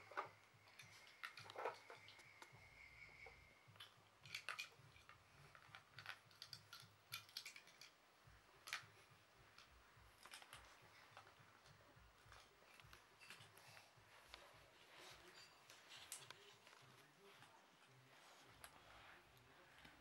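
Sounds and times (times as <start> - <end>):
toy cars clicking and clacking: 0.0 - 8.0, 8.6 - 14.4.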